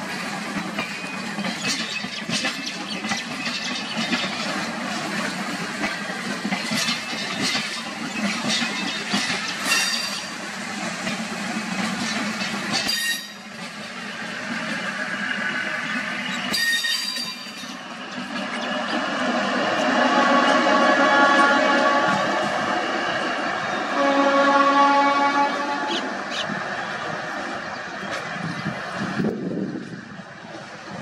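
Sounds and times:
train rumbling past: 0.0 - 31.0
wheels clattering over rail joints: 0.4 - 14.9, 15.9 - 19.3
high-pitched wheel squeals: 12.9 - 13.5, 16.3 - 17.8.

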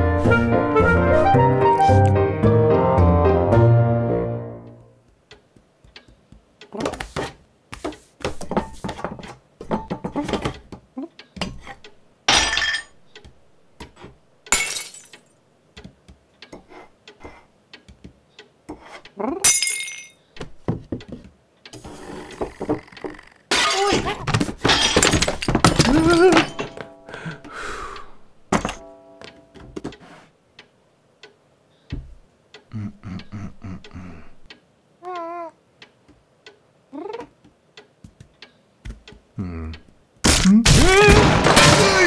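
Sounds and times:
small cartoon taps and knocks: 5.0 - 11.9, 15.7 - 16.8, 17.8 - 18.8, 20.4 - 21.4, 31.9 - 32.2, 37.1 - 40.0
ornament smashing: 23.5 - 26.9, 40.2 - 42.0.

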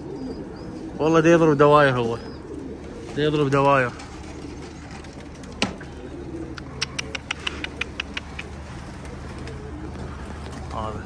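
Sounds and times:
pigeons cooing softly: 0.0 - 11.0
sharp clicks: 6.5 - 8.5.

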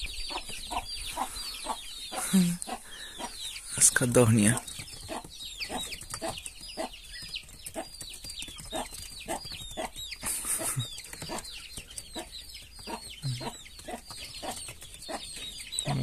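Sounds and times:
birds peeping: 0.0 - 16.0.

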